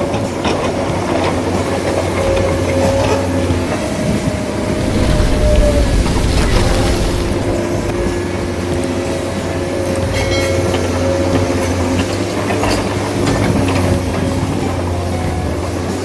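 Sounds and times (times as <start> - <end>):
machinery humming: 4.8 - 8.6.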